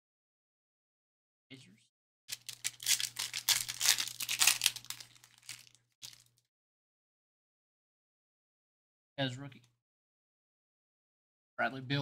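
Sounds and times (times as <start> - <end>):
wrapper crinkling: 2.3 - 6.4.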